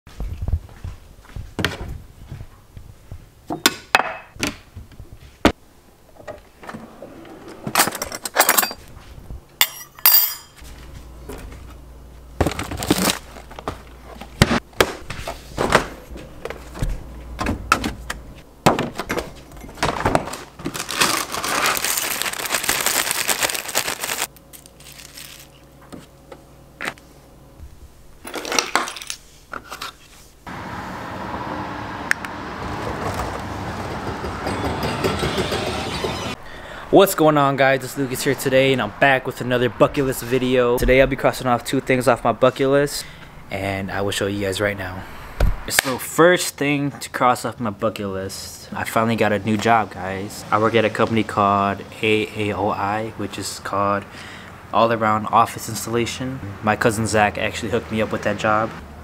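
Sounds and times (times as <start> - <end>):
glass and dishes clinking: 9.6 - 10.6
scattered knocks: 33.8 - 36.4.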